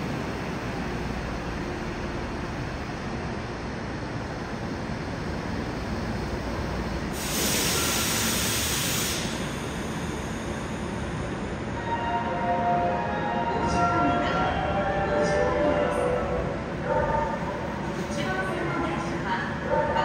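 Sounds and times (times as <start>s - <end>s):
air hiss burst: 7.2s - 9.7s.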